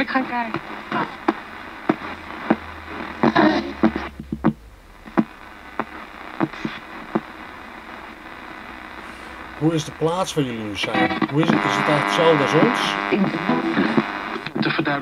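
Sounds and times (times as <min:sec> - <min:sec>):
broadcast voices: 0:00.0 - 0:15.0
radio hiss: 0:00.0 - 0:15.0
radio scanning clicks: 0:00.0 - 0:15.0.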